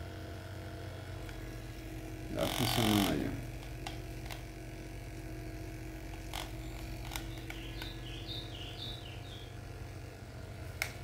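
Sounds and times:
massage gun humming: 0.0 - 11.0
clicks: 6.1 - 8.0, 10.7 - 11.0
high chirps: 7.2 - 9.6.

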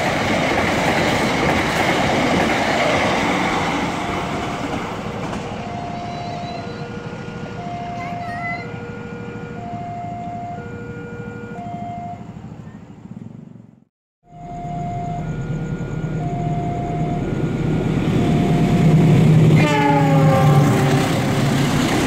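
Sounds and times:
train rumble: 0.0 - 13.8, 14.6 - 22.0
level-crossing alarm two tones: 3.3 - 12.4, 14.2 - 21.2
train horn: 5.9 - 7.6, 18.5 - 21.9.

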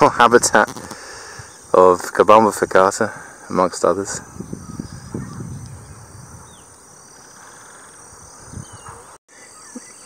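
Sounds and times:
bird trill: 4.2 - 10.0.

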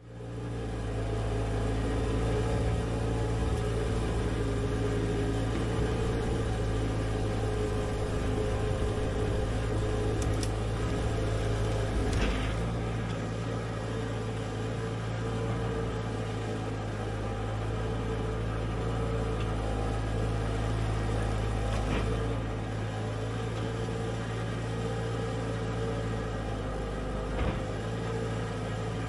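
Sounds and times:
excavator diesel engine running: 0.0 - 29.0
excavator clunk: 10.1 - 13.3, 21.7 - 22.4, 27.2 - 28.1.

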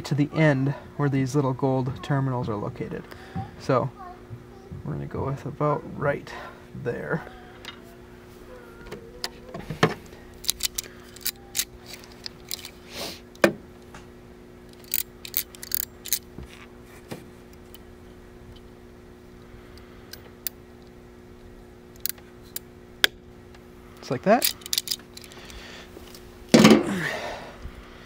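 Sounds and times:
steady low hum: 0.0 - 28.0
crimping tool clicks and rattles: 10.4 - 12.7, 14.7 - 16.3, 24.4 - 25.6.

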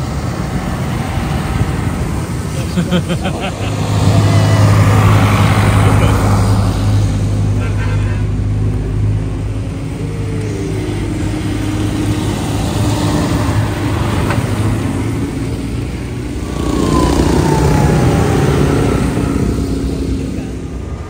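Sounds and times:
diesel tractors driving past: 0.0 - 21.0
car driving past: 16.2 - 21.0.

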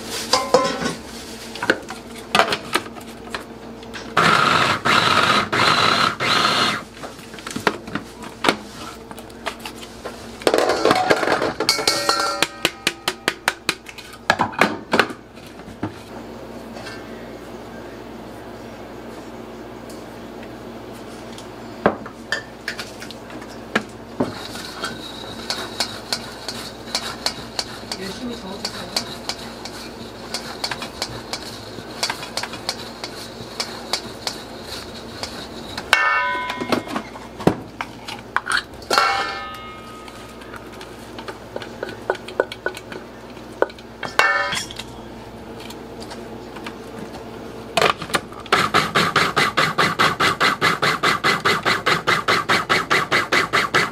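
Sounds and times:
food processor running: 4.2 - 6.9
ringing metal knocks: 11.7 - 13.4, 35.9 - 37.1
utensil scraping a metal bowl: 24.2 - 36.6.

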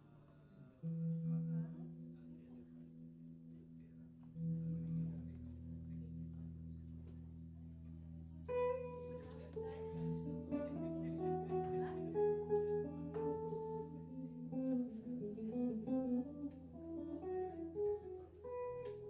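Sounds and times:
guitar bass and drums trio: 4.2 - 19.0
guitar picking quick melody: 8.4 - 19.0.

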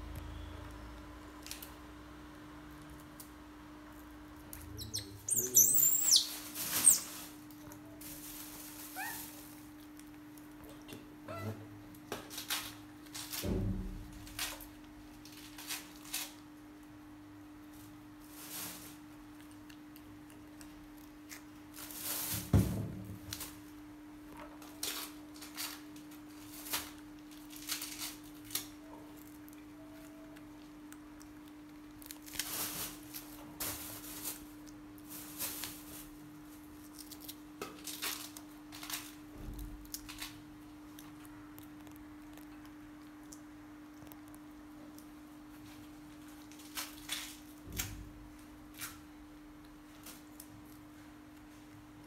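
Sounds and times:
seeds clicking and crunching: 4.5 - 7.8
seed pod rustling: 4.6 - 7.4
high-pitched chirping calls: 4.7 - 7.1
thump: 13.4 - 14.0.

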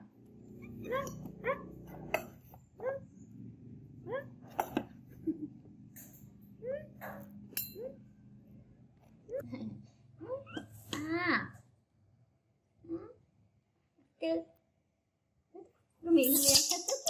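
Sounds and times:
baby monkey squeaking calls: 16.2 - 17.0.

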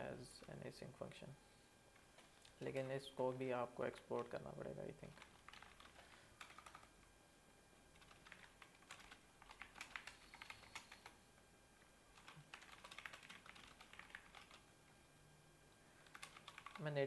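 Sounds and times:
faint keyboard typing: 3.9 - 7.1, 7.9 - 11.2, 12.1 - 14.7, 16.0 - 17.0.

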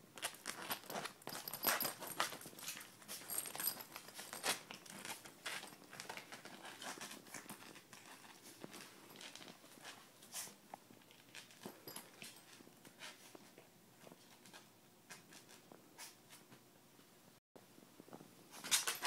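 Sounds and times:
dog claws scratching mesh: 0.2 - 13.3, 18.5 - 19.0.

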